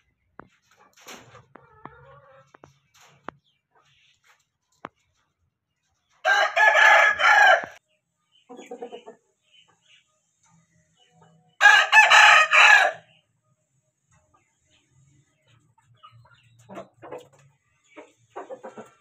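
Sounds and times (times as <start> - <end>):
chicken clucking: 0.0 - 13.3, 14.0 - 19.0
rooster crowing: 6.2 - 7.8, 11.6 - 13.1.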